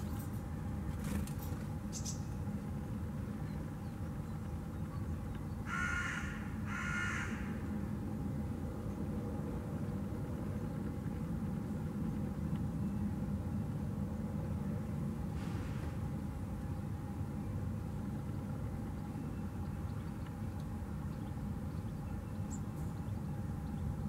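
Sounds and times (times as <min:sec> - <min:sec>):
low rumble of city traffic: 0:00.0 - 0:24.0
crow cawing: 0:05.7 - 0:07.6.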